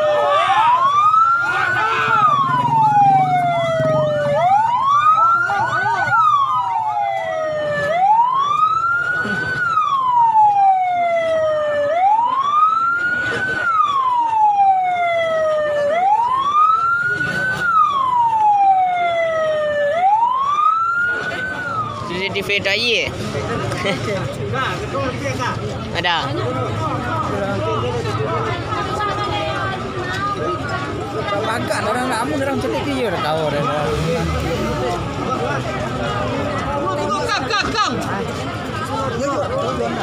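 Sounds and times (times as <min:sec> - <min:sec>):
second siren: 0:00.0 - 0:22.8
emergency siren wailing: 0:00.0 - 0:23.0.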